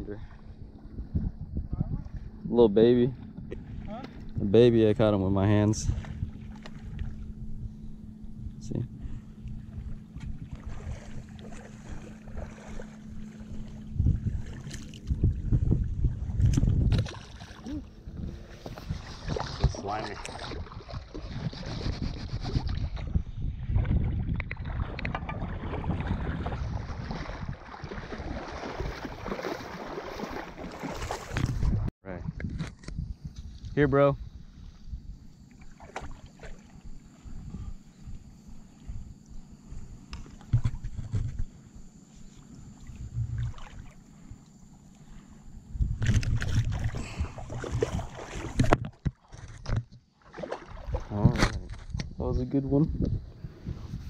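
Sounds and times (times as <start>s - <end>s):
wading through water sloshing: 5.6s - 7.4s, 9.0s - 21.8s, 24.6s - 31.8s, 34.3s - 51.1s.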